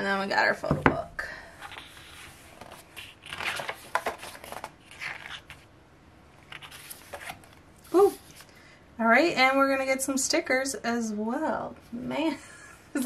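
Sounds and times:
pages rustling: 0:01.6 - 0:05.7, 0:06.4 - 0:08.5.

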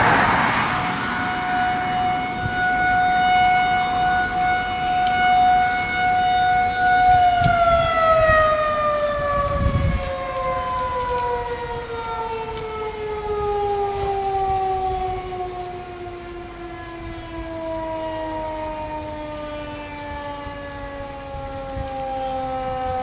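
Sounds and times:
low rumble: 0:00.0 - 0:02.8
rotating siren alert tone: 0:00.0 - 0:23.0.

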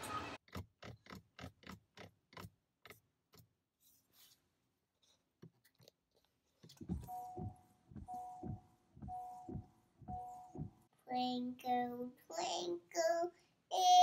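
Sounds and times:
car electronic chime pulsing: 0:07.0 - 0:10.8.

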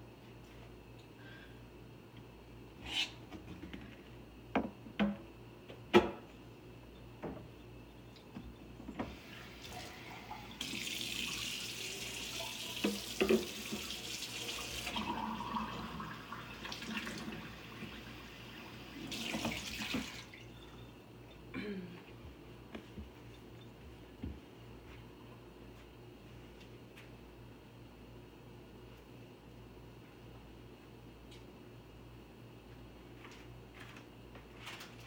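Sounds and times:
tap water running: 0:09.0 - 0:20.8.

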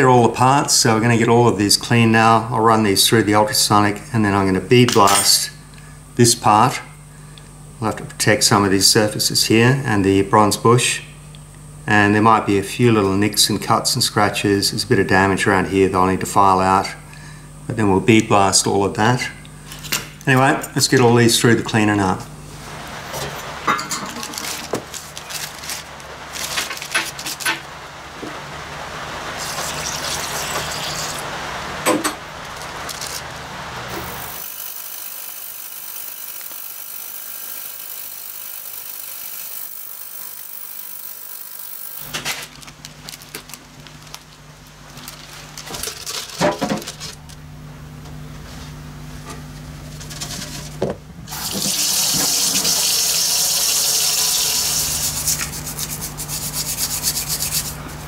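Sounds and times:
ultrasonic cleaner running: 0:00.0 - 0:58.0.

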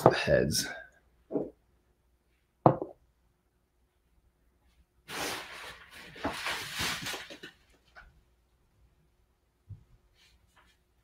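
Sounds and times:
plastic packaging crinkling: 0:05.1 - 0:07.8.

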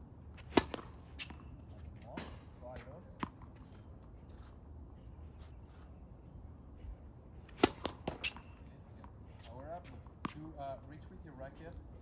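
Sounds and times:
racket hitting ball: 0:00.4 - 0:02.4, 0:07.5 - 0:09.2.

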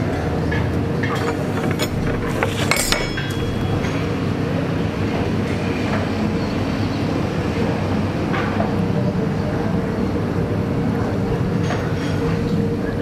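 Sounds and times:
steady low hum: 0:00.0 - 0:13.0
cutlery clinking on plate: 0:01.1 - 0:03.6.

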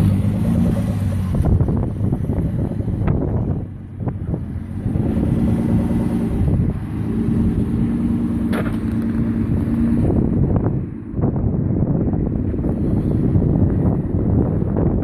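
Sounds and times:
engine revving under load: 0:00.0 - 0:11.5.

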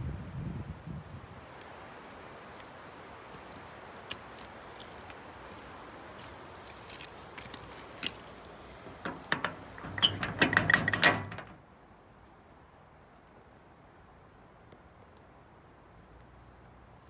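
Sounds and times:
padlock rattling against metal: 0:08.9 - 0:11.6.

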